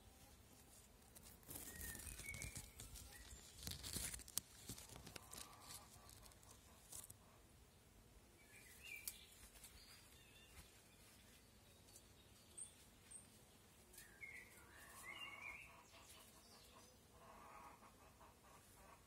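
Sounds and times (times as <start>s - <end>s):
birds chirping: 1.5s - 4.2s, 8.4s - 17.3s.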